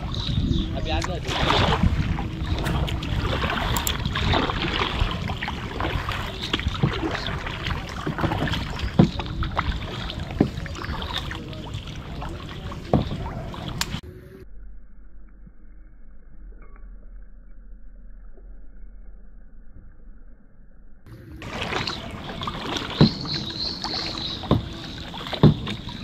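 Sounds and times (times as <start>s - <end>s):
paddle strokes splashing: 0.0s - 14.0s, 21.2s - 26.0s
steady low rumble: 0.0s - 22.8s
sharp knocks: 22.8s - 23.4s, 24.4s - 25.8s.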